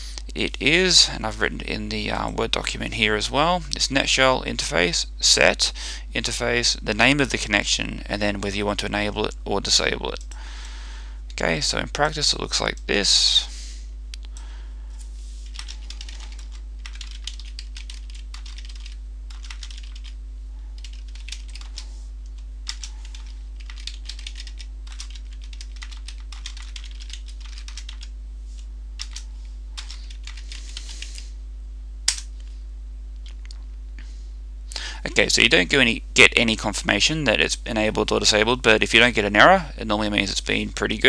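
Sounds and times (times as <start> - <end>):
low electrical hum: 0.0 - 41.0
keyboard typing: 15.4 - 20.2, 20.8 - 28.1, 29.0 - 31.2.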